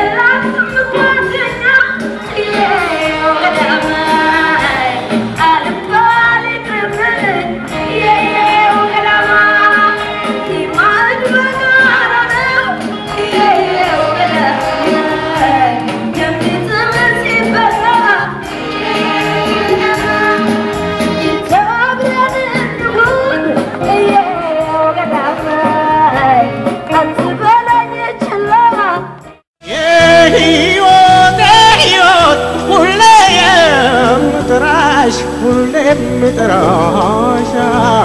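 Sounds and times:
woman singing into microphone: 0.0 - 29.1, 29.7 - 38.0
amplified backing music: 0.0 - 38.0.

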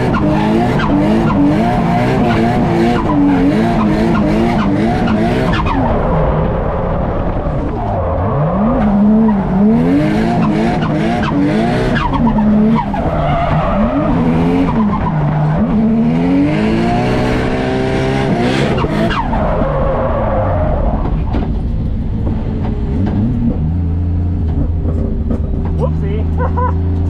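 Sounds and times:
car engine revving hard: 0.0 - 6.6, 8.3 - 19.4
tyres squealing and skidding: 0.0 - 16.4, 18.6 - 21.6.

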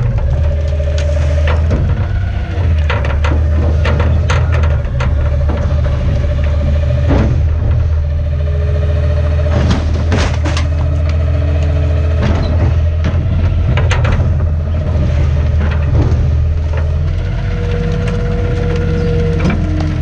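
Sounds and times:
garbage truck engine running: 0.0 - 20.0
knocks and clatters from truck body: 0.0 - 20.0.

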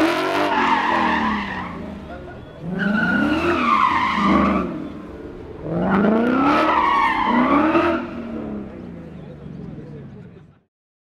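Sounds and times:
car engine revving: 0.0 - 10.2
tyres squealing: 0.5 - 5.2.

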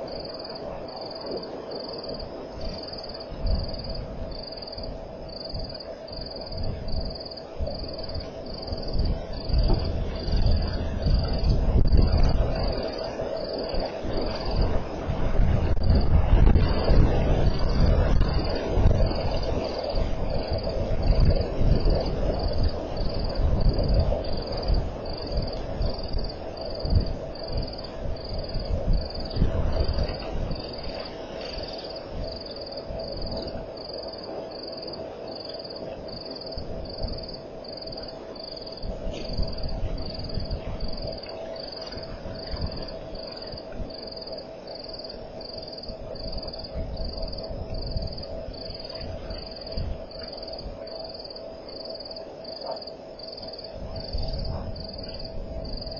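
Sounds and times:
low rumbling noise: 0.0 - 55.9.

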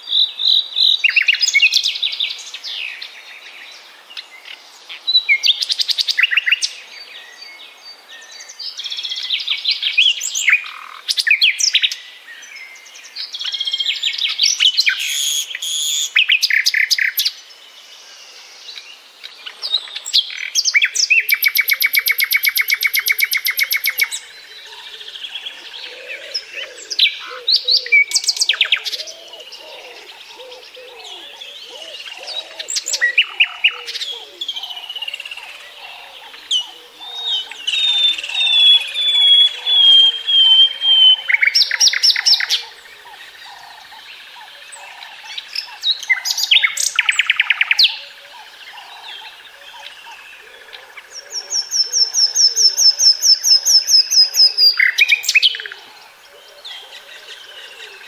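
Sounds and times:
nightingale singing: 0.0 - 58.0
faint bird calls: 19.3 - 58.0.

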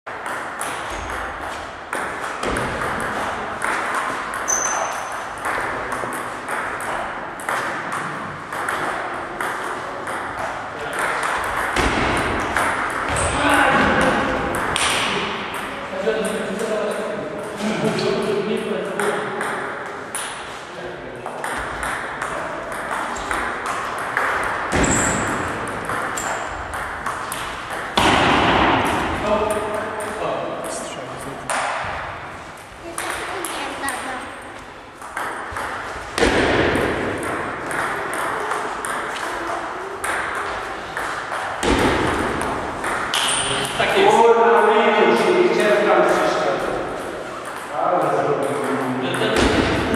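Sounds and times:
table tennis ball clicking: 32.9 - 34.1, 35.0 - 35.8.

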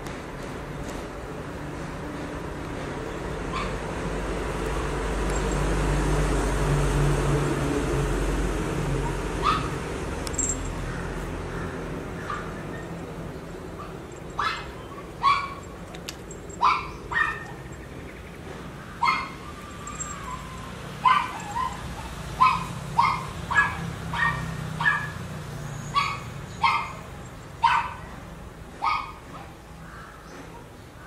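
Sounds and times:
dog yipping: 3.5 - 3.8, 9.0 - 11.0, 12.2 - 13.0, 13.7 - 17.8, 19.0 - 25.2, 25.8 - 28.2, 28.8 - 29.6.

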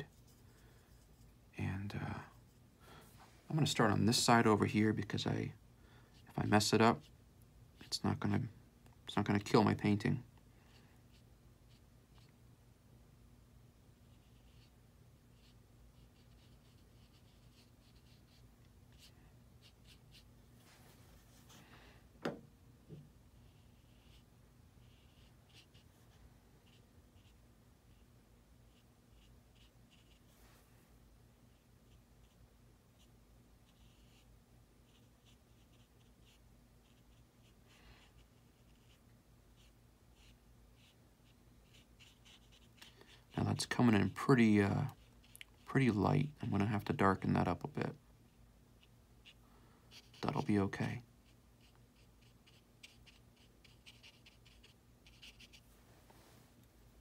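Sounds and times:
low steady room hum: 0.0 - 57.0
brush dabbing paint on paper: 0.1 - 1.4, 14.0 - 21.6, 22.9 - 30.6, 31.5 - 45.7, 48.8 - 56.7.

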